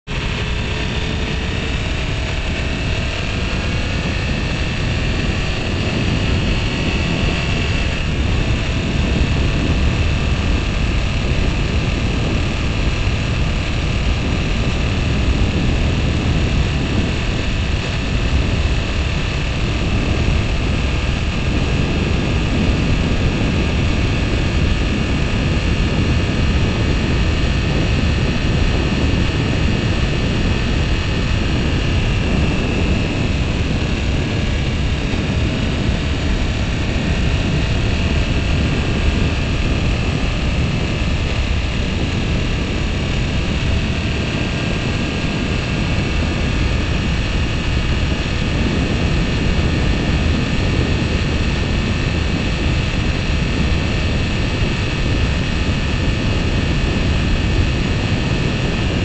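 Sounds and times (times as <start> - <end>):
motorcycle engine drone: 0.0 - 59.0
road noise: 0.1 - 23.0
wind rush: 0.1 - 59.0.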